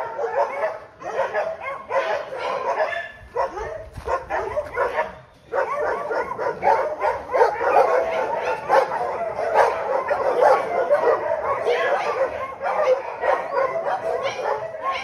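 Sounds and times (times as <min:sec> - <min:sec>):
dogs barking and yelping: 0:00.0 - 0:15.0.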